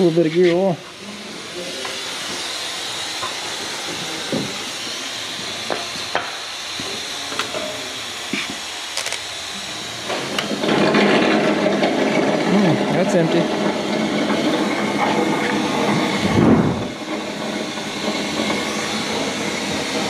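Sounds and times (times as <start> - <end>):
vacuum suction hiss: 0.0 - 10.8, 12.3 - 20.0
ratchet clicks: 8.9 - 9.3.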